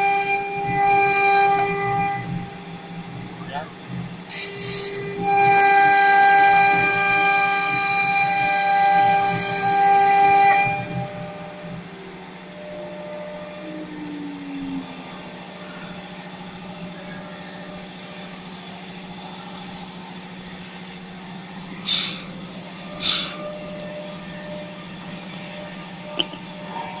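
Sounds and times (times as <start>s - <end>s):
cnc router spindle whine: 0.0s - 27.0s
compressed air blasts: 21.8s - 22.3s, 23.0s - 23.4s.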